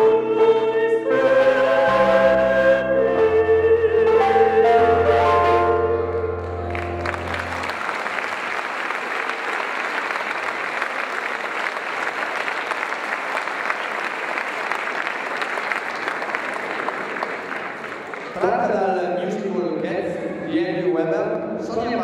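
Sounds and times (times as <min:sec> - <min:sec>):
audience applauding: 0:06.4 - 0:18.5.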